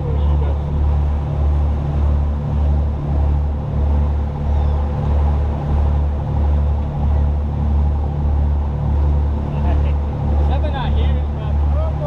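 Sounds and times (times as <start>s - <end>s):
boat engine rumbling: 0.0s - 12.0s
faint steady hum: 0.0s - 12.0s.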